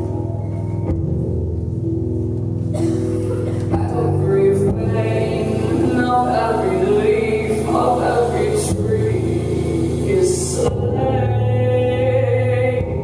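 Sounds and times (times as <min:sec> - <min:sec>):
woman singing: 0:03.6 - 0:13.0.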